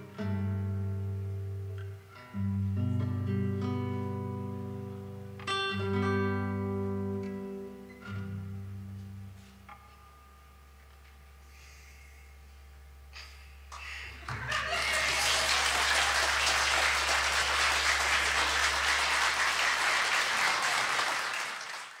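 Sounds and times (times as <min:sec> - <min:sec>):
classical guitar notes: 0:00.0 - 0:11.3
audience applause: 0:13.7 - 0:22.0.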